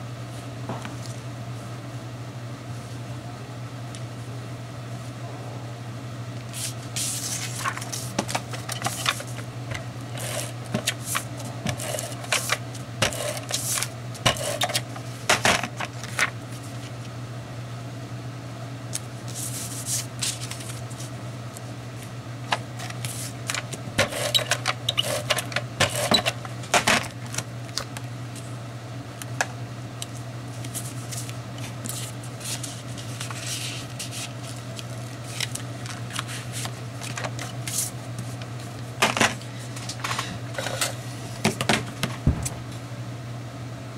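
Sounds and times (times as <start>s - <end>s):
steady low hum: 0.0s - 43.9s
paper rustling and sliding: 6.5s - 17.0s, 19.2s - 21.1s, 22.8s - 26.3s, 30.5s - 41.0s.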